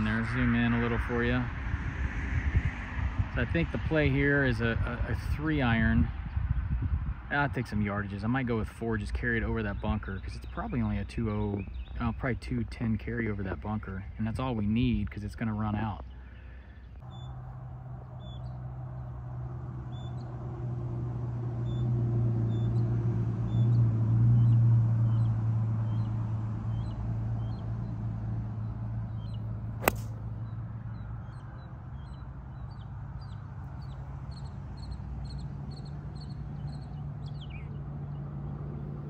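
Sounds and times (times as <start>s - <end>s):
small birds chirping: 9.4s - 14.6s, 15.2s - 19.2s, 19.8s - 20.3s, 21.6s - 39.0s
low steady drone: 17.0s - 31.9s
golf club striking ball: 29.7s - 30.3s.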